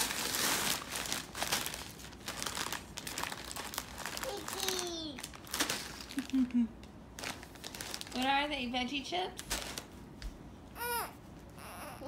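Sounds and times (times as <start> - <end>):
plastic packaging crinkling: 0.0 - 8.5, 9.3 - 10.0.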